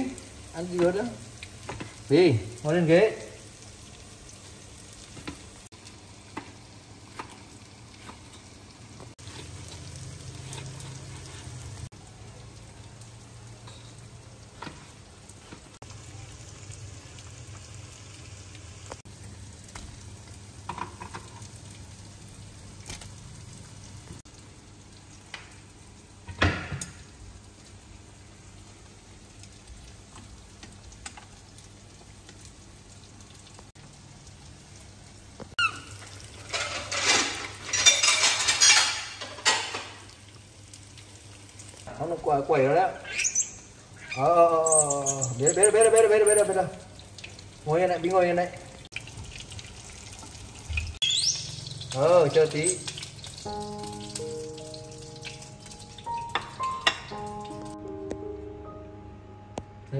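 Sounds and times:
food sizzling in frying pan: 0.0 - 57.9
utensils tapping and clinking: 36.4 - 40.0.

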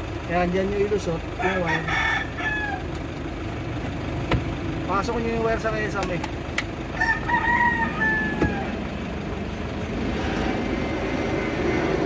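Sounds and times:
rooster crowing: 1.4 - 2.9, 6.9 - 8.9.

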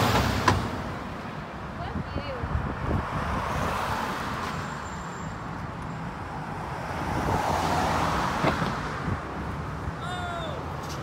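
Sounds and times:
traffic low rumble: 0.0 - 11.0
car passing: 2.4 - 11.0.

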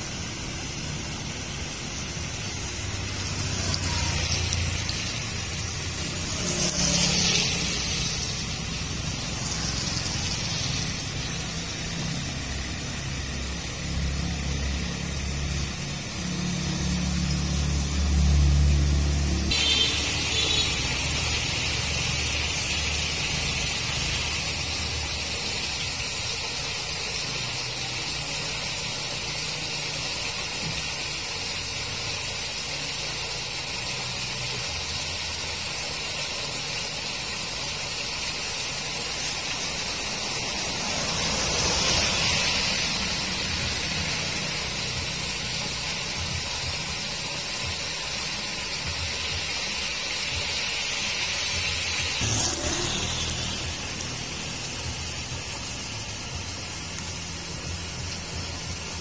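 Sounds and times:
water gushing through grate: 30.0 - 59.0.

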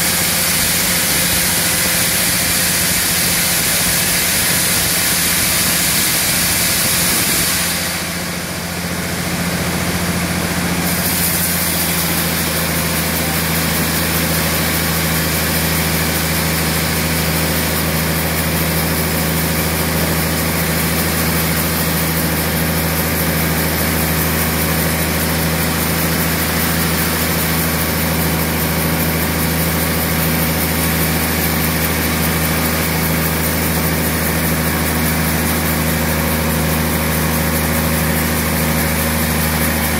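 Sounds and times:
high hiss: 0.0 - 8.9
band saw mill humming: 0.0 - 39.9.

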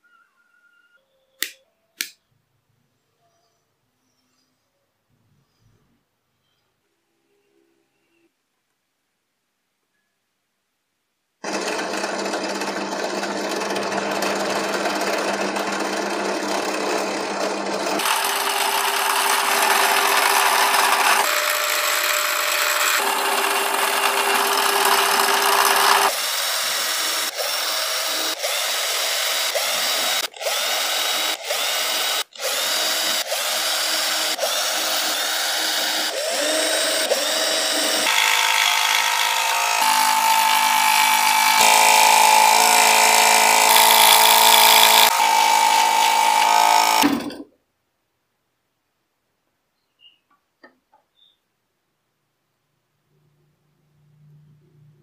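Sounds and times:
drill press boring into wood: 11.4 - 47.5
scroll saw cutting wood: 11.4 - 47.5.

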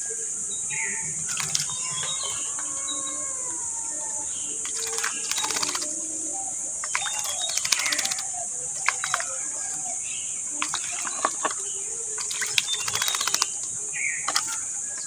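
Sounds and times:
faint bird chirps: 0.0 - 15.0
high insect drone: 0.0 - 15.0
sharp beak clicks: 4.6 - 6.0, 6.8 - 9.4, 12.2 - 14.6.

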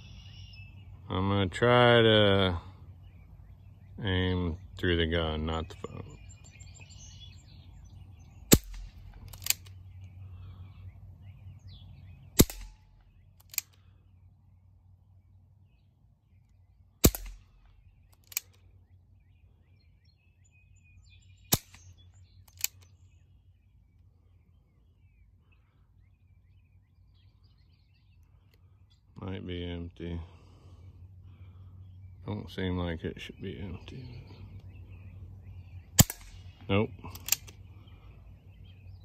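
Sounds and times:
bb revolver shots cracking: 8.4 - 9.8, 12.3 - 13.8, 17.0 - 18.6, 21.4 - 22.9, 35.9 - 37.7.

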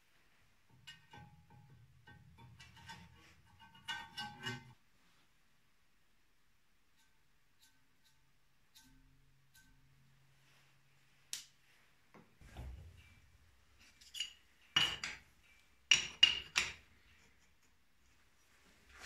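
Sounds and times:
metal clinks and clanks: 13.9 - 17.4.

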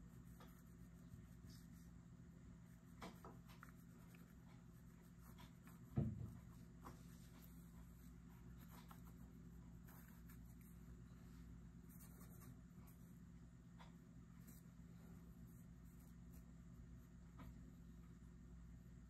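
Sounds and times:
paintbrush scratching on board: 0.0 - 1.9, 2.6 - 11.1
faint low hum: 0.0 - 19.0
soft low thump: 5.9 - 6.6.

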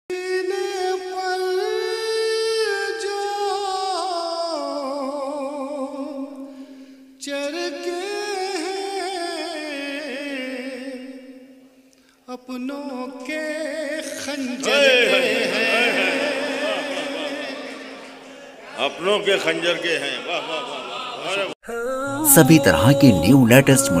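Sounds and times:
man singing unaccompanied: 0.1 - 6.5, 7.2 - 11.6, 12.3 - 18.0, 21.6 - 24.0.

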